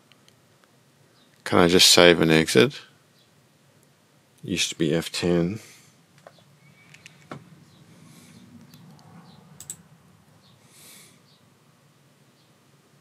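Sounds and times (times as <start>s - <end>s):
steady low hum: 0.0s - 13.0s
faint key clicks: 6.2s - 7.4s, 8.6s - 9.8s.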